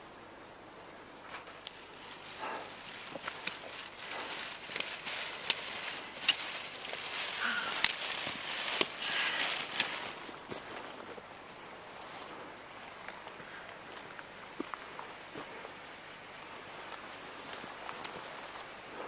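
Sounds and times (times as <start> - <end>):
plastic rain poncho rustling: 1.2 - 13.4, 16.7 - 19.0
trekking pole tips clicking on stones: 1.4 - 10.9
footsteps crunching on gravel: 1.7 - 15.8.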